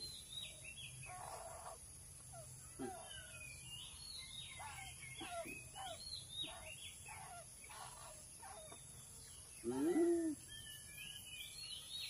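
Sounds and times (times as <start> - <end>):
birds chirping: 0.0 - 12.0
insects hissing: 0.2 - 10.7
crow calling: 1.0 - 1.8, 4.5 - 8.8.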